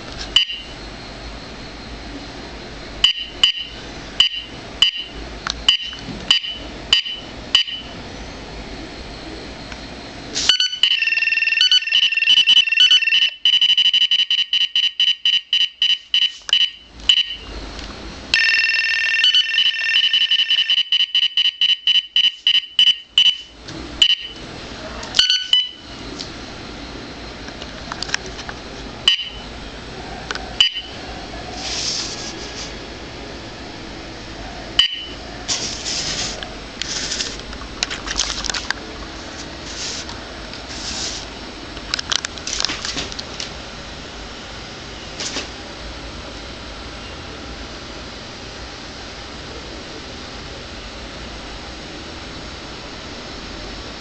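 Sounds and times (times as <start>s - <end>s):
radar detector warning beeps: 0.3s - 0.8s, 3.0s - 8.0s, 10.5s - 17.5s, 18.4s - 24.4s, 25.2s - 26.1s, 29.0s - 29.5s, 30.6s - 31.0s, 34.8s - 35.2s.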